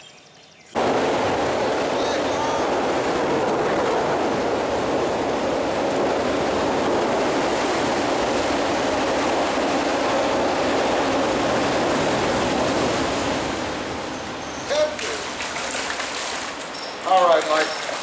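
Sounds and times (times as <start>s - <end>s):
creek water rushing: 10.3s - 18.0s.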